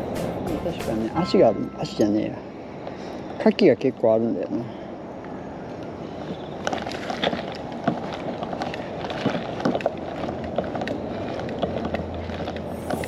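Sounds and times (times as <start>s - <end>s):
footsteps on paved path: 5.8s - 13.0s
fishing gear clicks and knocks: 6.2s - 13.0s.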